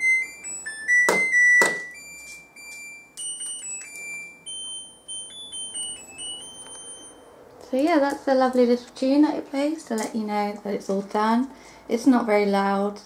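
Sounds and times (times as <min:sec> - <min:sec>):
washing machine beeping tune: 0:00.0 - 0:07.4.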